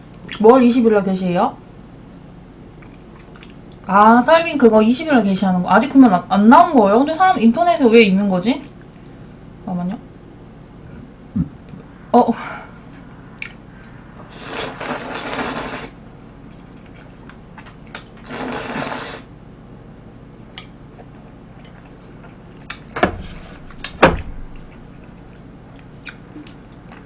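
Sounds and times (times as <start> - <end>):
noodles being slurped: 14.3 - 16.0, 18.2 - 19.3
sharp knocks: 23.0 - 24.6.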